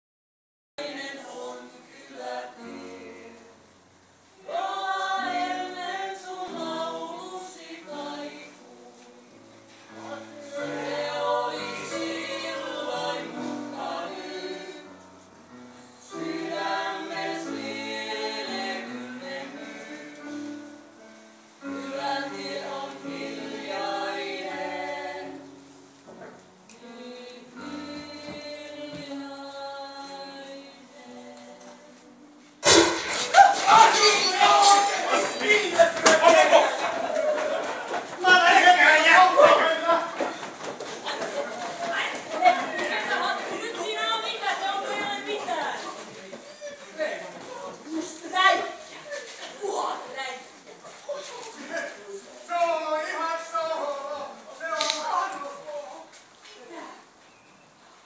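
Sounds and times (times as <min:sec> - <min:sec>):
choir singing: 0:00.8 - 0:40.1, 0:42.3 - 0:45.8.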